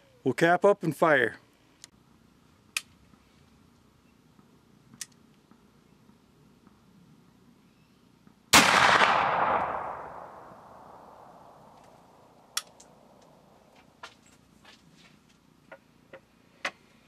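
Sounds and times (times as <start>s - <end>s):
light clicks of rifle handling: 4.9s - 5.6s, 11.6s - 13.4s
rifle shot: 8.5s - 11.8s.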